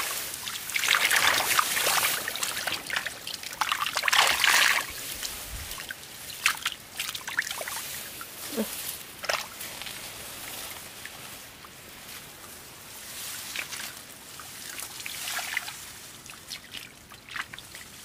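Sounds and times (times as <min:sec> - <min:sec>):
shallow water sloshing: 0:00.0 - 0:08.0.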